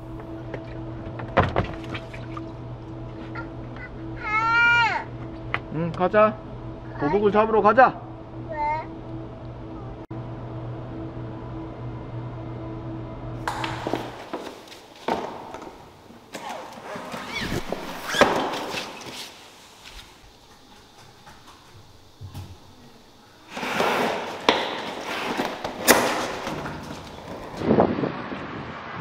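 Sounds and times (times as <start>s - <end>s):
rustling: 16.6s - 21.6s.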